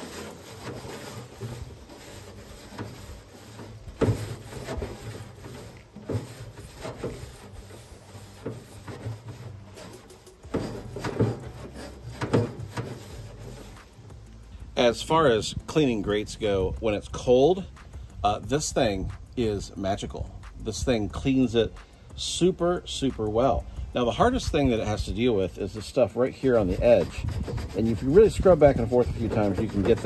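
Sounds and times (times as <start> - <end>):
wire brush scraping grill grates: 0.0 - 15.1, 24.2 - 30.0.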